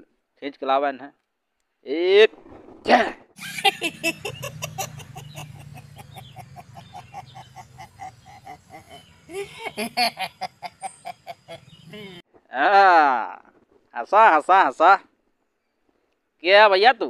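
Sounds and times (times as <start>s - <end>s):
man cackling laugh: 3.4s - 12.2s.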